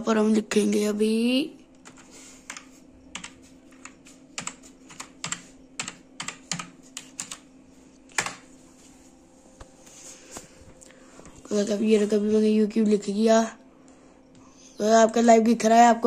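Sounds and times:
computer keyboard typing: 1.8s - 7.5s, 8.1s - 8.4s.

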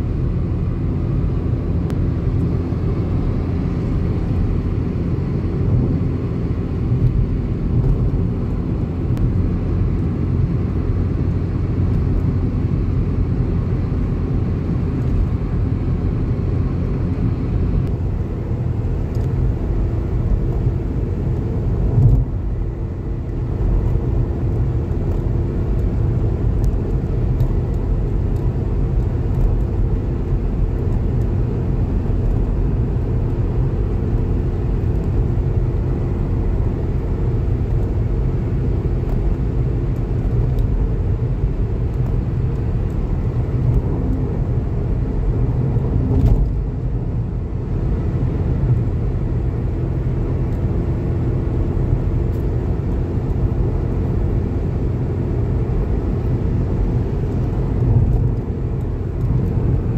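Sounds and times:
car cabin road rumble: 0.0s - 59.9s.

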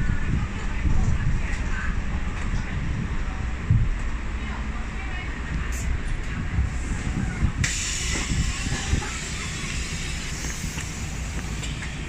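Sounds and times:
bus engine idling: 0.0s - 12.0s
compressed air hissing: 7.6s - 11.8s.

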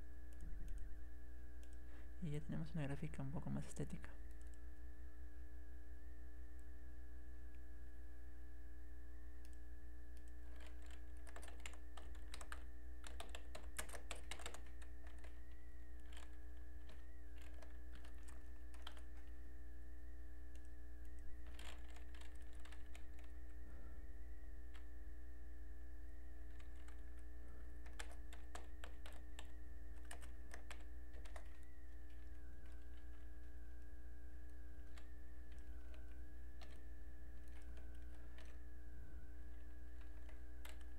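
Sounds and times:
faint wavering high whine: 0.0s - 40.9s
steady low hum: 0.0s - 40.9s
typing on computer keyboard: 10.2s - 19.3s, 21.4s - 23.4s, 26.4s - 27.2s, 27.8s - 33.5s, 34.8s - 38.6s, 39.5s - 40.9s.

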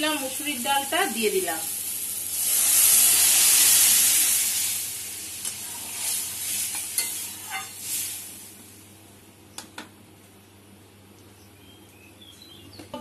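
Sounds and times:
loud sizzle in hot pan: 0.0s - 9.1s
spatula scraping metal pan: 5.6s - 7.8s.

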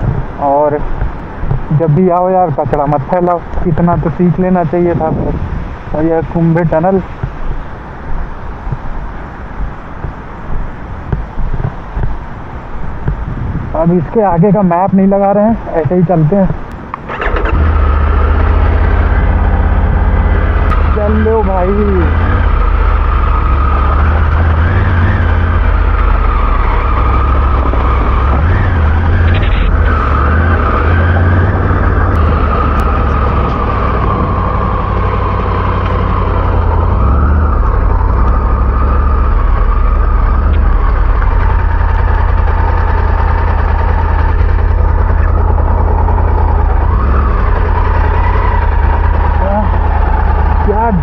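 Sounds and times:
wind rumble on microphone: 0.0s - 17.0s, 18.6s - 47.9s
motorcycle engine: 14.7s - 51.0s.

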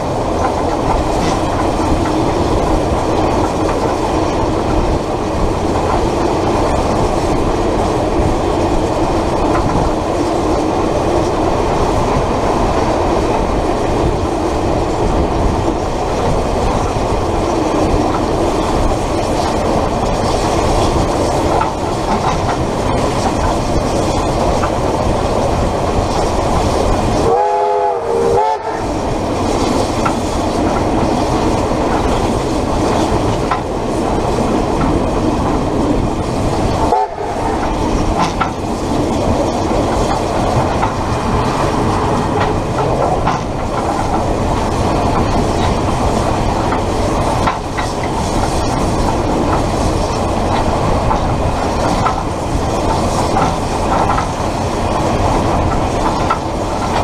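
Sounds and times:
train running noise: 0.0s - 57.0s
chord-like train horn blast: 27.2s - 28.9s, 36.9s - 37.4s.

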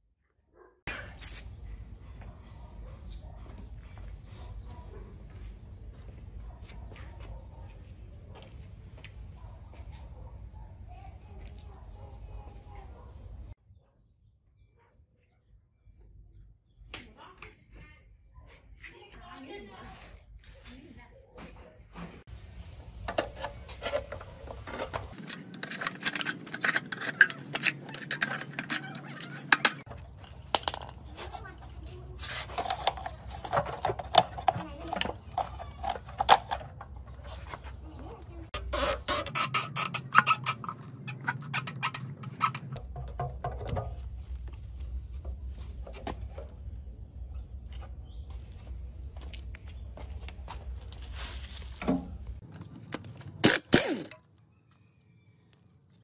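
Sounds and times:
screwdriver clicking on metal cap: 25.2s - 29.8s, 38.6s - 42.8s.

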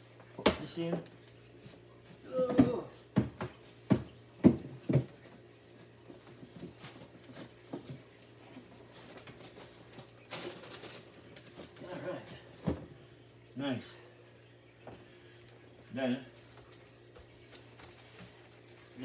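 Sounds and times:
groceries rustling: 0.0s - 12.7s, 15.9s - 19.0s
groceries knocking: 2.3s - 5.3s.

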